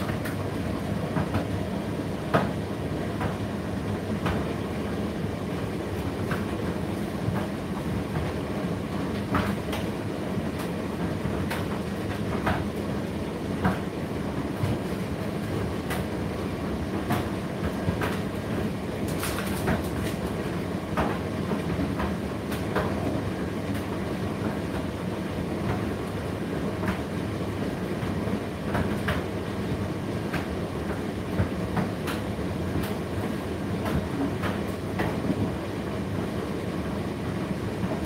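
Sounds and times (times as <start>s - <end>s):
tumble dryer humming: 0.0s - 38.0s.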